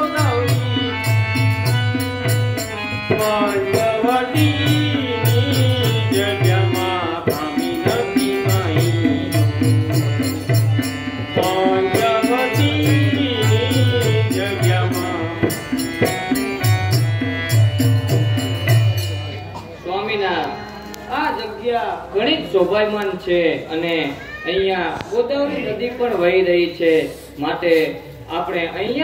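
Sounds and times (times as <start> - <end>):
drum beat: 0.0 - 19.2
ornamented sliding melody: 0.0 - 22.1.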